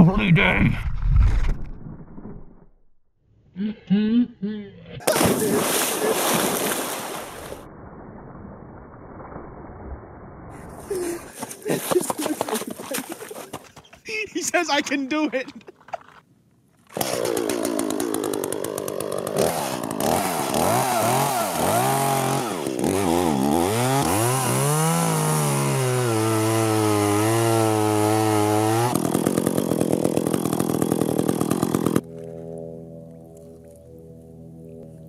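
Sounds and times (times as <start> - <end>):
chainsaw cutting ice: 16.9 - 32.5.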